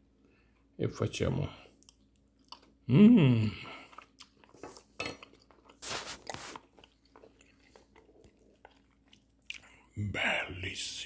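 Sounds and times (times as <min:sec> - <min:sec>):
chewing: 0:01.6 - 0:02.8, 0:03.6 - 0:09.9
man humming with enjoyment: 0:02.9 - 0:03.8.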